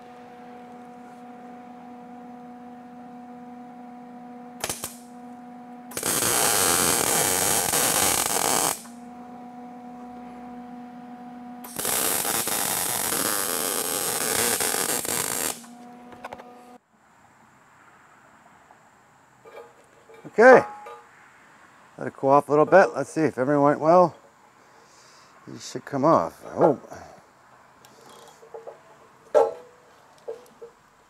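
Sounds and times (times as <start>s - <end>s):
welder humming: 0.0s - 16.8s
brief electric crack: 4.6s - 5.0s, 5.9s - 8.9s, 11.6s - 15.7s
welding hiss: 4.6s - 5.1s, 5.9s - 9.0s, 11.6s - 15.7s.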